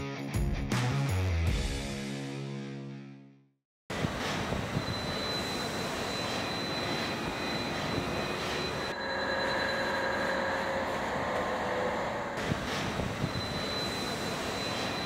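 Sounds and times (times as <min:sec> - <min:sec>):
shop machinery drone: 0:03.9 - 0:15.0
thin high whine: 0:04.7 - 0:12.4, 0:13.2 - 0:15.0.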